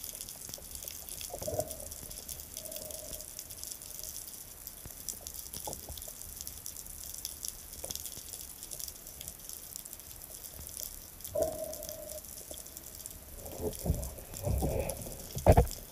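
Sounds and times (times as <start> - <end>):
gentle water movement: 0.0 - 15.9
underwater ticks and clicks: 0.0 - 15.9
dull underwater thumps: 13.7 - 15.9.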